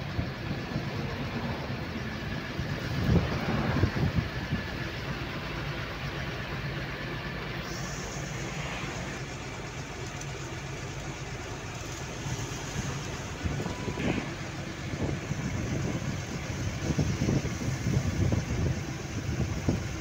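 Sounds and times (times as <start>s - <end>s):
wind buffeting microphone: 0.0s - 5.3s, 12.7s - 20.0s
vehicle road and engine noise: 0.0s - 20.0s.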